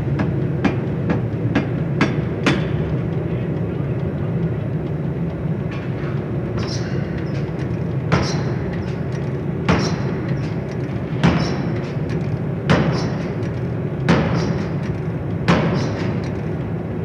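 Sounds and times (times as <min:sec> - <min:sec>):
machinery humming: 0:00.0 - 0:17.0
forging hammer impacts: 0:09.6 - 0:10.6, 0:11.2 - 0:12.1, 0:12.7 - 0:16.4.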